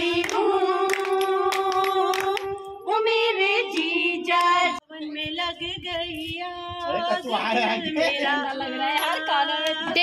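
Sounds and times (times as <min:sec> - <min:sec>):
woman singing unaccompanied: 0:00.0 - 0:10.0.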